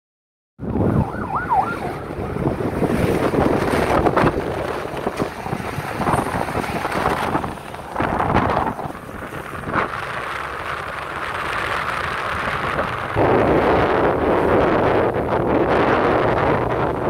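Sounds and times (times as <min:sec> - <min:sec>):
motorcycle engine rumble: 0:00.6 - 0:17.0
passing street traffic: 0:00.6 - 0:17.0
wind buffeting microphone: 0:00.6 - 0:17.0
warbling tone: 0:00.7 - 0:03.2.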